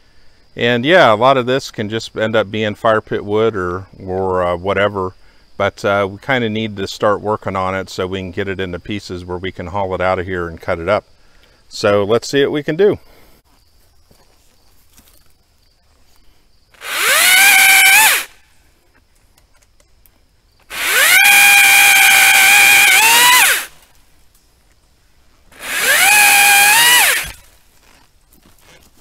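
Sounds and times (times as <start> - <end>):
pole saw cutting branches: 16.8 - 18.4, 20.7 - 23.9, 25.5 - 28.9.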